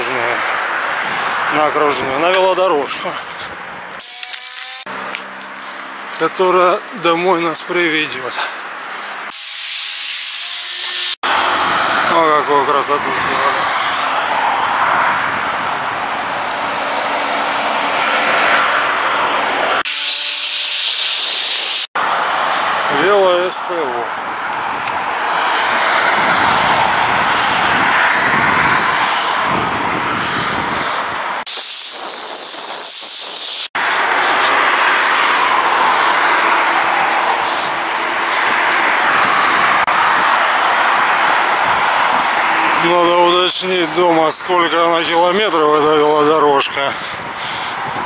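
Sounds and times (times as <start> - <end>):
road traffic rushing: 0.0 - 48.0
wind noise while cycling: 13.9 - 17.6, 24.2 - 42.4, 46.9 - 48.0.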